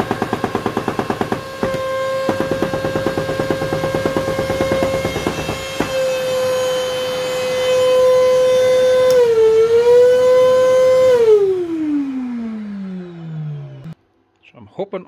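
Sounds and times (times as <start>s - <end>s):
dust extractor motor whining: 0.0s - 14.0s.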